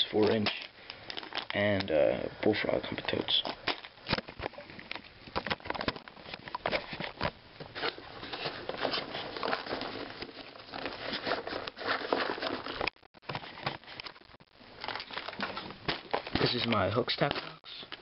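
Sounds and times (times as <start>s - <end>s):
bag rustling: 2.8s - 16.6s.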